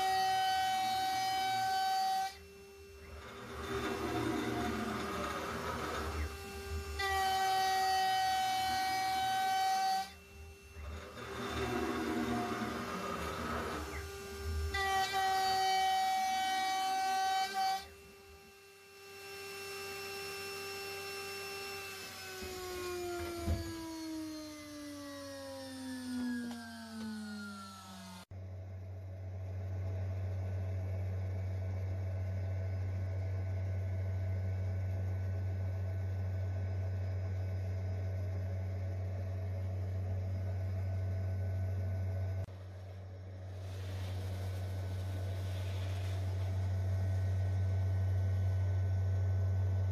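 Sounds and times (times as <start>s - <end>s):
low machine hum: 0.0s - 49.9s
milling cutter cutting aluminium: 3.0s - 17.9s.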